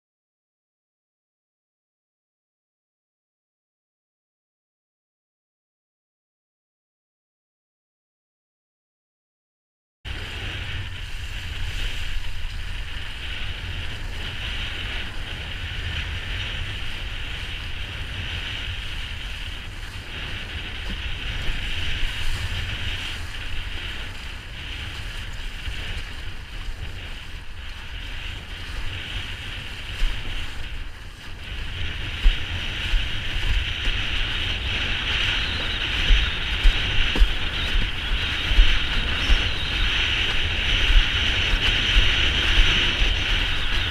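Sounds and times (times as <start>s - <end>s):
water rushing against board: 10.1s - 43.9s
wind buffeting microphone: 10.1s - 43.9s.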